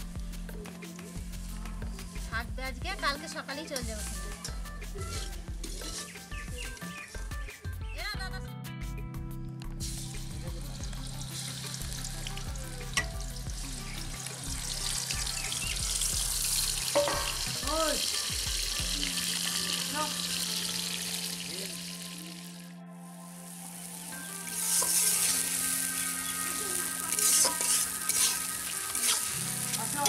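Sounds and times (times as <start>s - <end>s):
spatula stirring: 3.7s - 6.8s, 24.6s - 25.5s, 27.1s - 30.0s
paste sizzling in hot oil: 3.7s - 7.2s, 9.8s - 22.6s, 23.5s - 30.0s.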